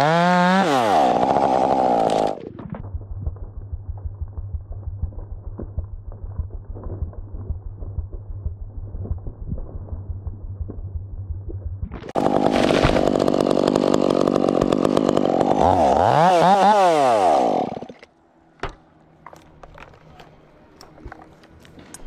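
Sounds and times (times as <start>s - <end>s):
chainsaw engine revving: 0.0s - 2.4s, 12.1s - 18.0s.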